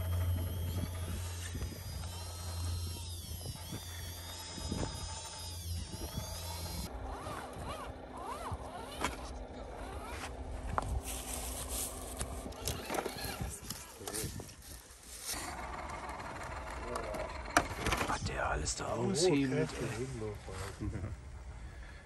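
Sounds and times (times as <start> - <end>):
electric motors whining: 0.0 - 20.3.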